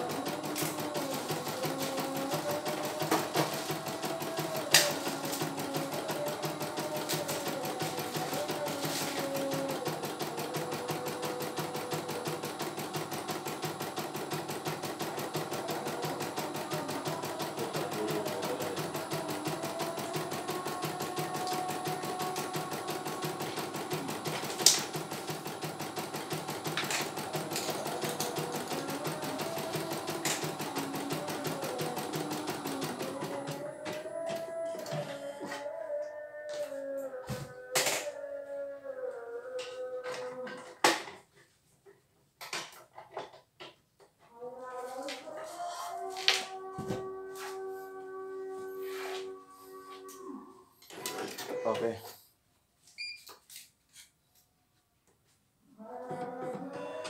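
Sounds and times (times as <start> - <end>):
embroidery machine needle clatter: 0.0 - 33.6.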